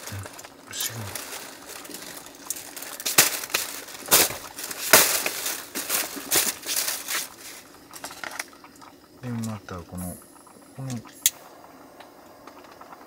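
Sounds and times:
crunching and crinkling: 0:00.0 - 0:09.6.

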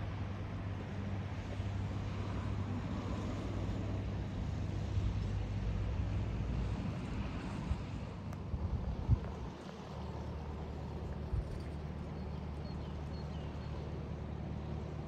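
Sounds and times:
boat engine humming: 0:08.4 - 0:15.0.

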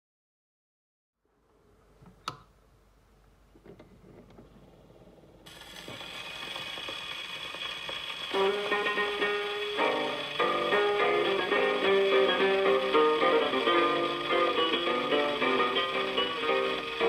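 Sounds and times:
record surface hiss and crackle: 0:01.3 - 0:17.0
guitars playing on record: 0:08.3 - 0:17.0.

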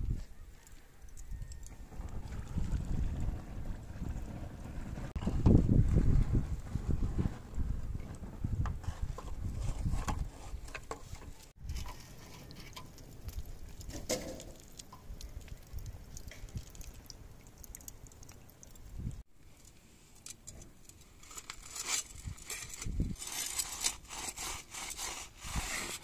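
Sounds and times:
oil burning and crackling on blade: 0:11.4 - 0:26.0.

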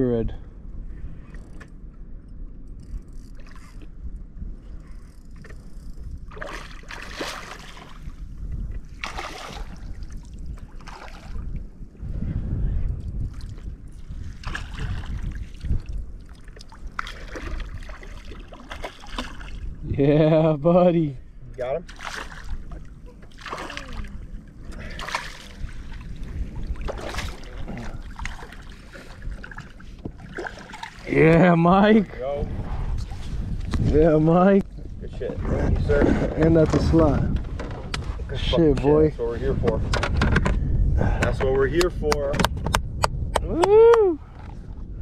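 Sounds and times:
wind rumble on microphone: 0:00.0 - 0:45.0
fish thrashing and splashing: 0:06.3 - 0:08.1, 0:08.9 - 0:09.9, 0:16.7 - 0:19.6, 0:21.9 - 0:24.2
water splashes: 0:06.3 - 0:11.6, 0:13.3 - 0:19.8, 0:21.8 - 0:32.1.

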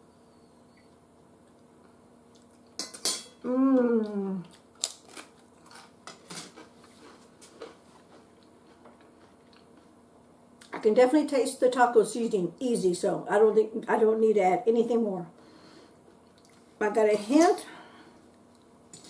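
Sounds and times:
person humming mmm: 0:03.4 - 0:04.6
person crunching taco shell: 0:04.5 - 0:06.0.

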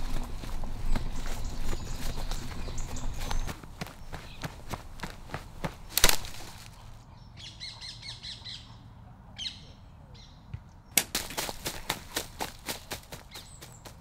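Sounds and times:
footsteps on dry leaves: 0:00.0 - 0:07.0, 0:11.0 - 0:14.0
songbird singing: 0:00.0 - 0:14.0.

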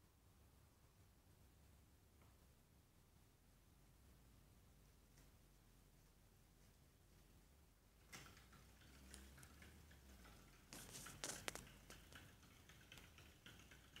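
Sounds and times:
hamster claws clicking on wheel: 0:08.1 - 0:14.0.

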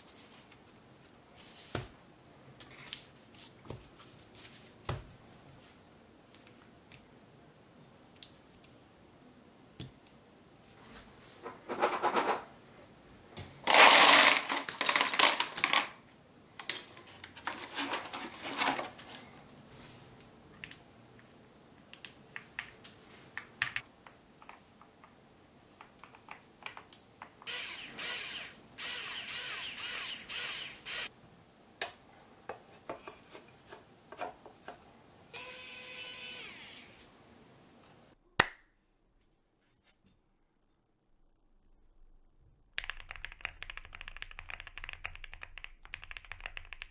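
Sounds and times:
small motor whine: 0:27.5 - 0:31.1, 0:35.4 - 0:37.0
keyboard parts clicking and snapping: 0:42.8 - 0:46.9.

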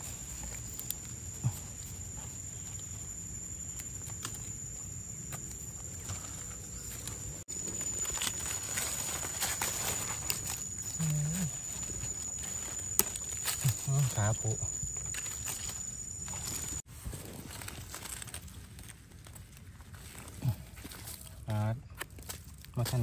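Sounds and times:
footsteps rustling through leaves: 0:06.0 - 0:21.4.

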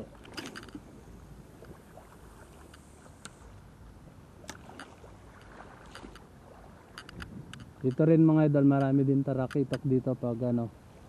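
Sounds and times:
low wind rumble: 0:00.0 - 0:11.0
water lapping against a kayak: 0:00.0 - 0:11.0
small splashes: 0:04.4 - 0:07.2.

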